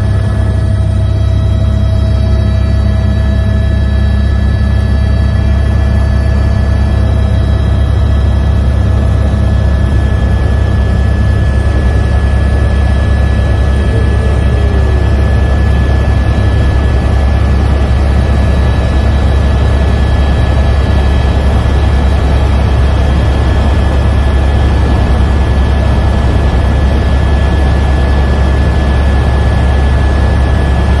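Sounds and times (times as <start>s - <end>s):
helicopter rotor and turbine drone: 0.0s - 31.0s
thin high whine: 0.0s - 31.0s.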